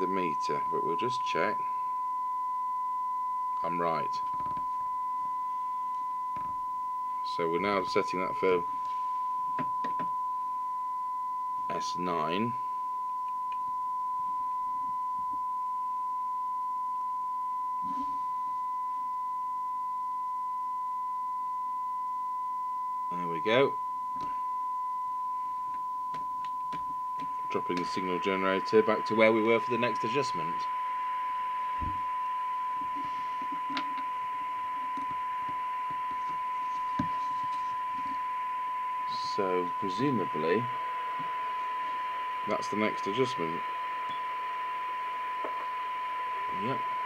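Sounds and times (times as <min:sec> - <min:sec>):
steady test tone: 0:00.0 - 0:47.0
radio receiver hiss: 0:39.0 - 0:47.0.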